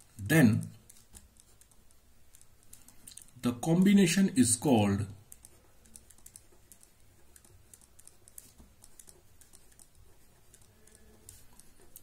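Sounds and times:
pen scratching on paper: 0:05.2 - 0:12.0.

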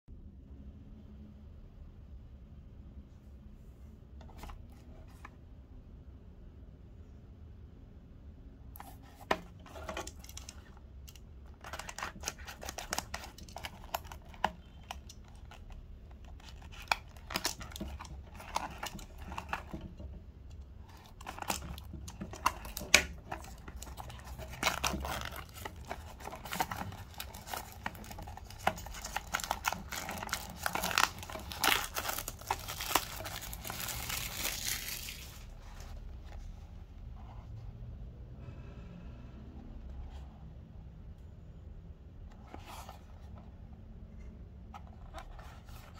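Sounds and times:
cellophane crinkling and tearing: 0:09.6 - 0:20.2, 0:20.8 - 0:35.8.

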